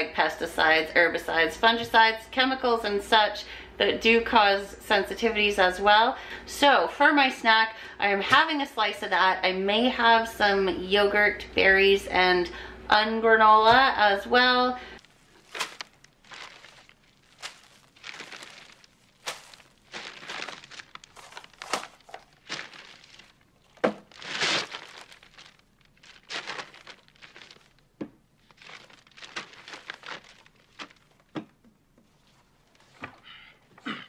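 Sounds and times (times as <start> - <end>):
paper bag rustling: 15.0 - 31.3.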